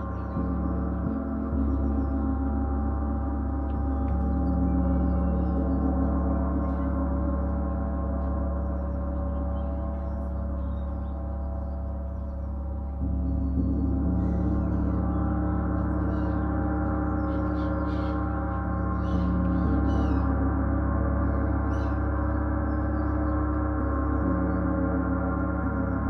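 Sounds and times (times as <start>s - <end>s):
gong played with soft mallets: 0.0s - 26.0s.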